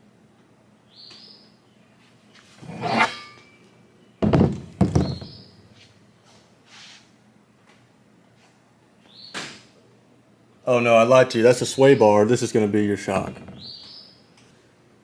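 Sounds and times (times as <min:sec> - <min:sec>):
metal scrape with ring: 0:02.6 - 0:03.6
heavy steel thunks: 0:04.2 - 0:05.5.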